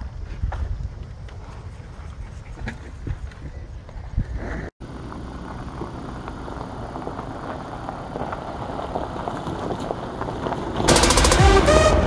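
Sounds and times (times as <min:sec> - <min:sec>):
tyres on gravel: 0:04.5 - 0:12.0
car engine: 0:04.8 - 0:12.0.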